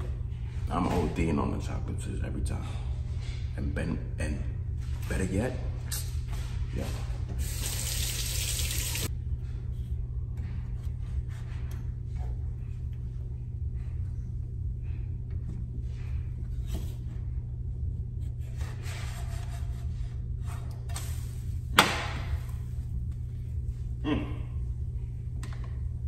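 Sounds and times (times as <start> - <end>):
steady low hum: 8.8 - 26.0.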